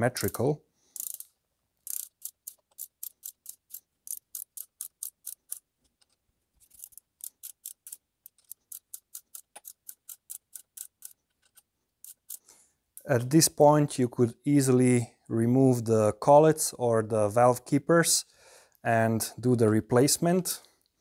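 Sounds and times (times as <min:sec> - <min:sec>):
torque wrench ratchet clicking: 0:01.0 - 0:05.6, 0:06.7 - 0:11.2, 0:12.0 - 0:12.4.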